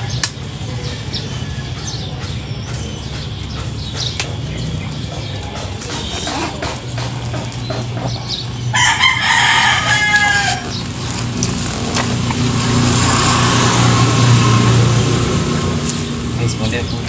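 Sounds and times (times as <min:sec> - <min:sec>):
rooster crowing: 0:08.7 - 0:11.2.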